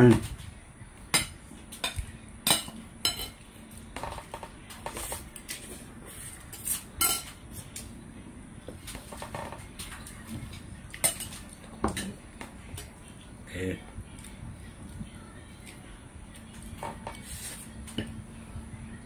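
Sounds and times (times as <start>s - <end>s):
cutlery clinking on a plate: 1.2s - 3.4s, 6.6s - 7.4s, 10.9s - 12.2s.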